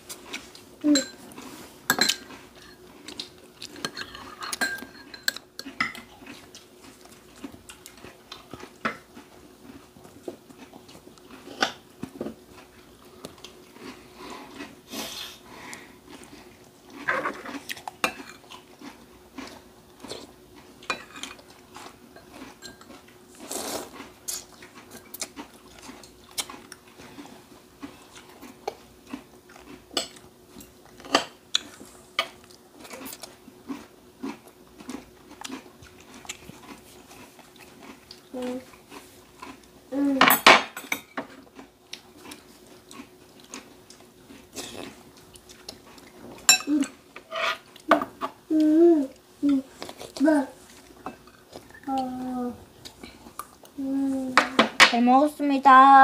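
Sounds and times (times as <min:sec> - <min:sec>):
faint steady hum: 0:00.0 - 0:56.0
utensils clinking on bowls: 0:00.8 - 0:01.2, 0:01.9 - 0:02.8, 0:03.8 - 0:06.1, 0:22.2 - 0:22.9, 0:46.4 - 0:48.1.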